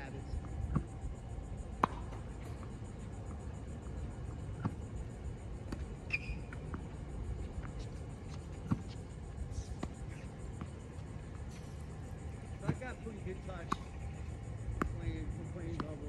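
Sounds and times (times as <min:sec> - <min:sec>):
low steady rumble: 0:00.0 - 0:15.8
tennis balls knocking: 0:01.8 - 0:02.8, 0:12.5 - 0:14.0, 0:14.7 - 0:16.0.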